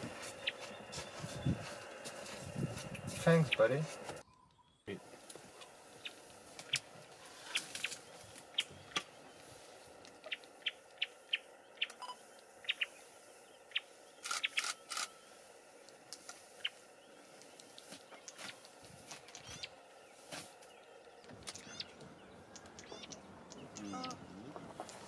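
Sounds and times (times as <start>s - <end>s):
twigs and leaves snapping: 6.6s - 9.1s.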